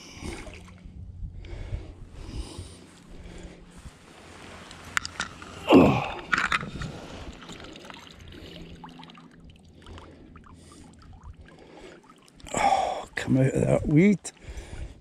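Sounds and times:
water splashing and sloshing: 0.0 - 1.0, 2.8 - 13.2
water lapping: 0.0 - 15.0.

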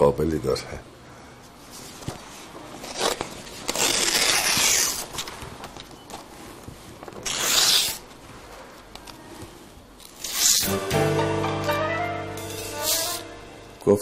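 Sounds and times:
paper rustling: 12.5 - 13.2.

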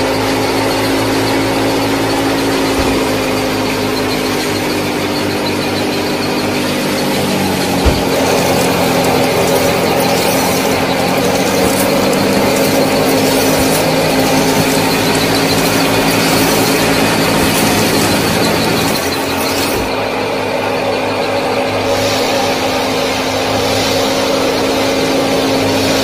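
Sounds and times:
small motor whining: 0.0 - 20.2.

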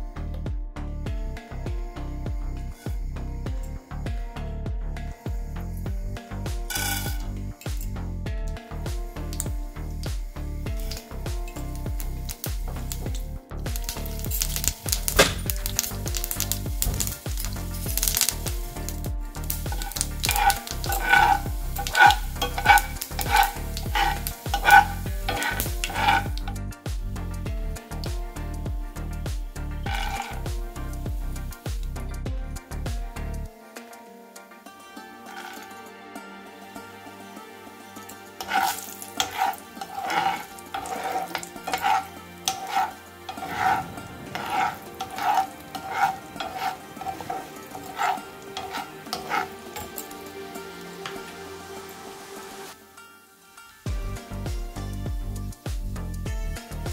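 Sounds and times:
metal spoon scraping pan: 6.7 - 7.3, 13.8 - 26.6, 29.8 - 31.0, 35.3 - 35.8, 38.4 - 51.5
seeds sizzling in hot oil: 6.7 - 7.6, 8.8 - 26.8, 28.9 - 32.2, 34.7 - 35.8, 37.2 - 56.2.

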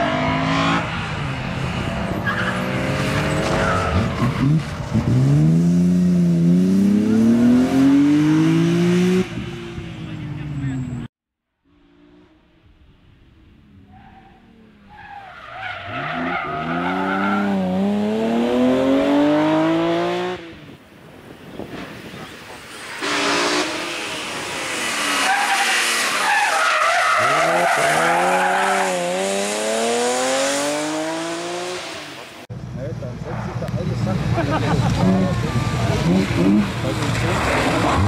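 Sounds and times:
car engine at full throttle: 22.4 - 26.4, 27.1 - 38.0.

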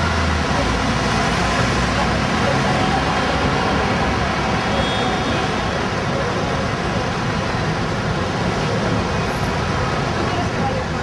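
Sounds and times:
city street traffic: 0.0 - 11.0.

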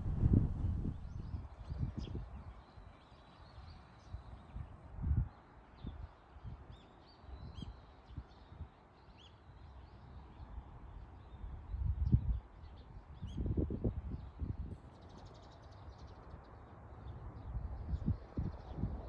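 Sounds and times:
low thumps: 0.0 - 1.0
steady outdoor hiss: 0.0 - 6.4.

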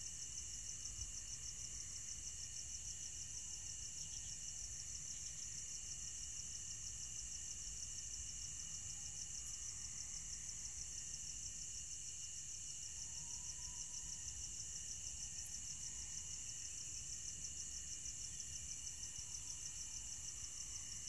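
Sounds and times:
crickets chirping: 0.0 - 21.0
low insect trill: 0.0 - 21.0.

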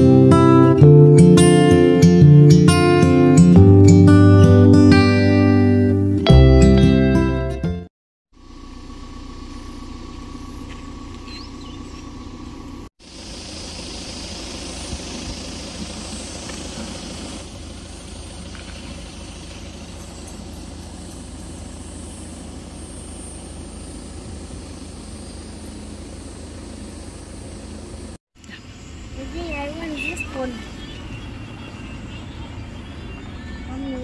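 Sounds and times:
low outdoor rumble: 8.4 - 34.0.

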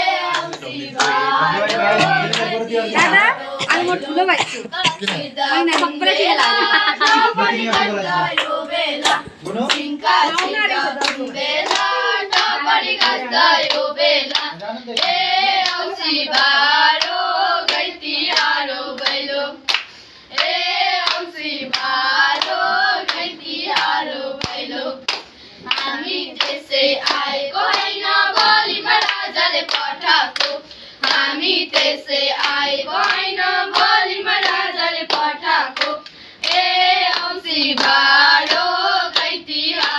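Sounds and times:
girls singing in unison: 0.0 - 39.9
rhythmic clapping: 0.0 - 39.9.

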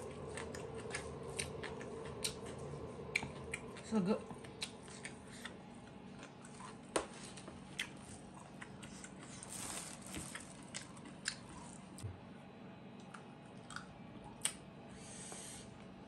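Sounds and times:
chewing and biting: 0.0 - 12.0, 13.0 - 14.6
soft squishes of food: 0.0 - 12.0.

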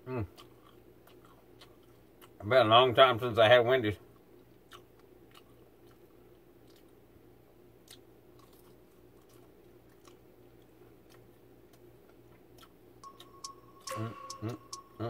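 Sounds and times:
faint chewing: 0.2 - 2.4, 4.1 - 7.0, 7.8 - 13.3.

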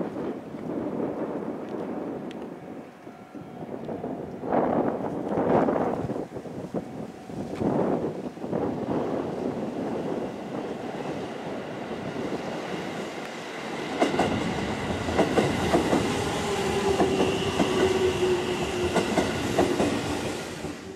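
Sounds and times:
wind on microphone: 0.0 - 20.8
train wheels clacking over rail joints: 13.9 - 20.9.

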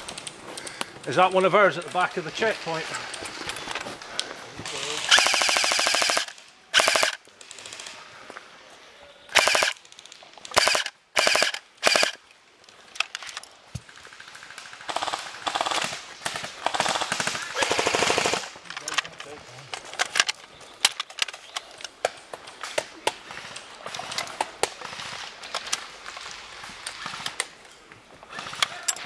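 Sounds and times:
airsoft gun firing full auto: 4.9 - 7.9, 9.3 - 9.8, 10.5 - 12.2, 14.2 - 18.5.

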